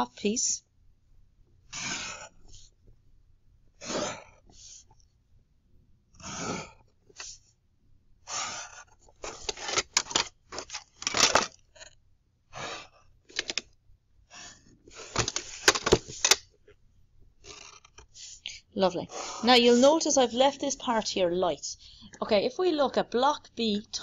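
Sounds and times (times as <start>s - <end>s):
pencil scratching on paper: 1.7s - 2.7s, 6.2s - 7.5s, 8.2s - 9.7s, 17.4s - 18.4s, 19.1s - 20.3s
plastic drawing instruments clicking: 9.2s - 11.6s, 13.3s - 13.7s, 15.0s - 16.4s.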